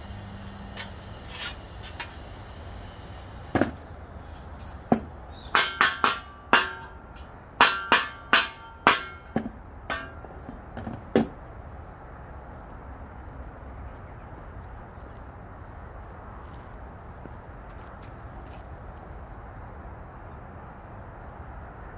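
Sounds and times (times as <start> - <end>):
brush knocking on metal dustpan: 4.6 - 11.3.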